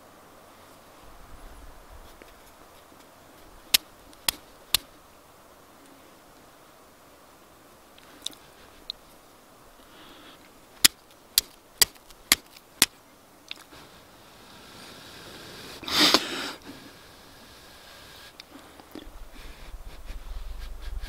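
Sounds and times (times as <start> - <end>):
breathy rush of air: 9.7 - 10.6, 13.7 - 21.0
steel striking flint: 10.8 - 13.0.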